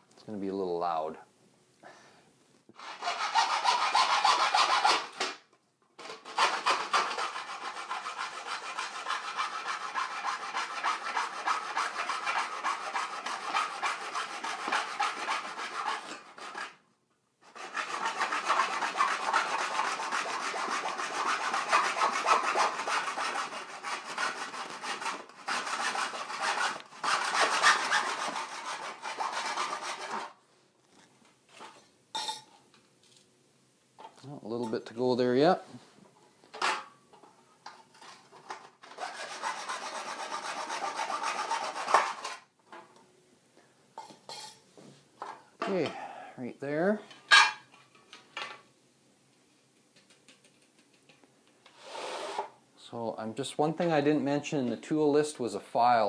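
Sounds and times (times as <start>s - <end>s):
hacksaw rasping through metal: 2.8s - 5.2s, 6.0s - 16.8s, 17.4s - 30.4s, 38.8s - 42.4s.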